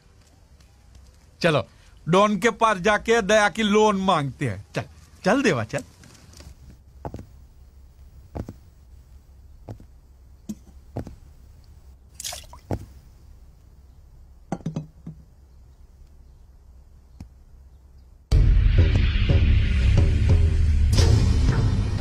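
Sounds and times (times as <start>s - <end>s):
loud background music: 18.4s - 22.0s.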